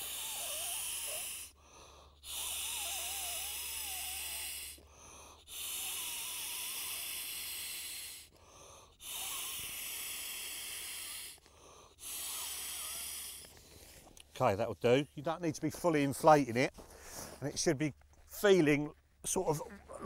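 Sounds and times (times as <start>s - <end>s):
man blowing into air valve: 0.0s - 4.8s, 5.4s - 8.3s, 8.9s - 11.4s, 12.0s - 13.6s.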